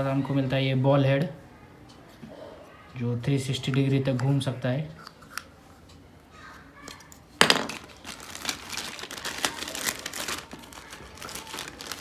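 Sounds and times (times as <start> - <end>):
plastic bag crinkling: 7.4 - 12.0.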